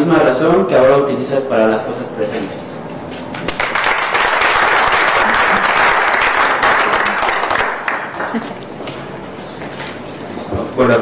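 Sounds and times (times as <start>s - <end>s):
audience applauding: 3.5s - 8.6s.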